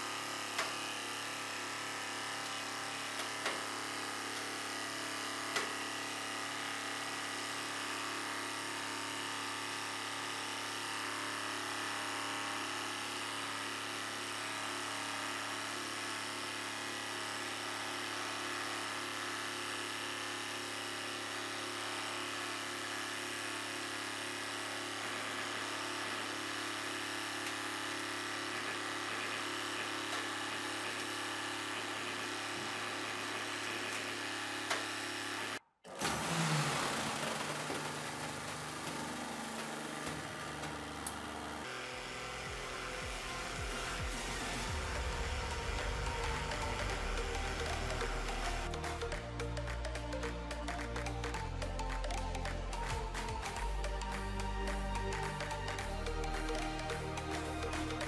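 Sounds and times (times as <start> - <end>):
hydraulic pump humming: 0.0 - 49.6.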